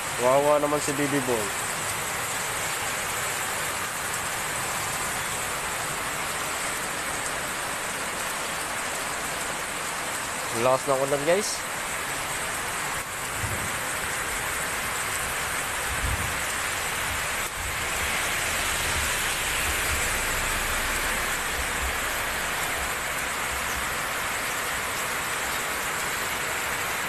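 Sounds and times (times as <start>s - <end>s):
heavy rain pouring: 0.0s - 27.0s
vehicle driving past on wet road: 17.5s - 22.6s.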